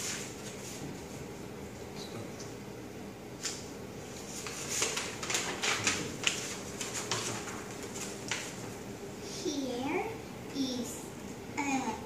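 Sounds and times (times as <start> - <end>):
paper rustling and crinkling: 3.4 - 8.7.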